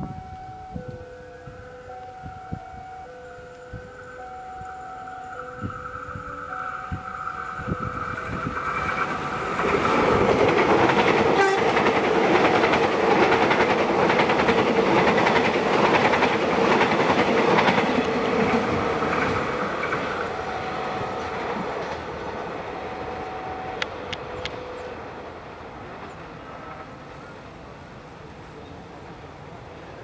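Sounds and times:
steady tone: 0.0s - 12.7s
train wheels clattering: 6.9s - 22.5s.

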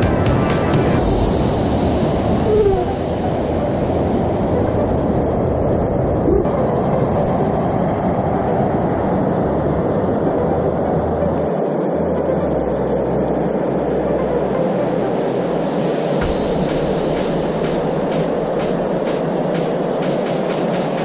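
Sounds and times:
river rapids rushing: 15.4s - 21.0s.

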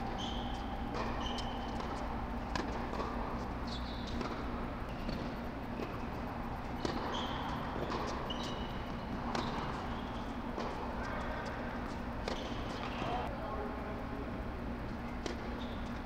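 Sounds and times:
racket striking ball: 0.0s - 9.8s
sneaker squeaks: 0.0s - 13.3s, 15.0s - 16.0s
steady low hum: 0.0s - 16.0s
tennis ball impacts and bounces: 0.1s - 9.8s, 12.2s - 13.2s.

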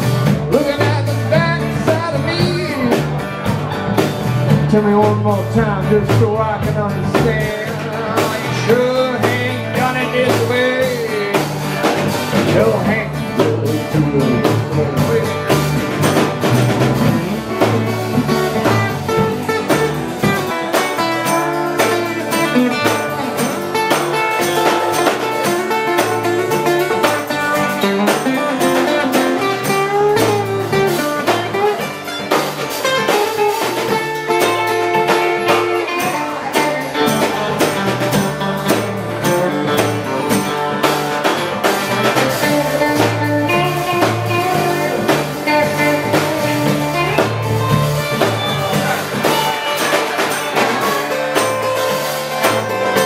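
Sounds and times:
acoustic guitar strumming: 0.0s - 53.0s
drum kit beat: 0.0s - 53.0s
electric guitars: 0.0s - 53.0s.

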